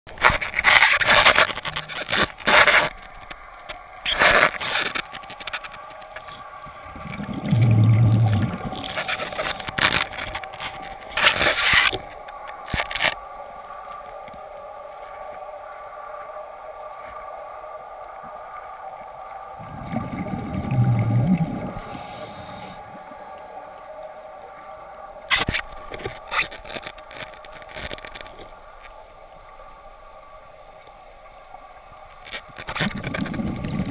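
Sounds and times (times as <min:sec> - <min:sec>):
muffled underwater hum: 0:05.3 - 0:11.5, 0:19.3 - 0:32.2
low rumbles: 0:06.9 - 0:09.4, 0:19.6 - 0:22.4.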